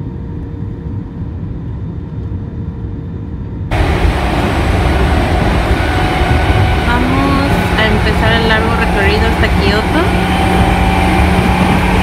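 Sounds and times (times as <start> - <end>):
airliner cabin rumble: 0.0 - 12.0
train car running noise: 3.4 - 12.0.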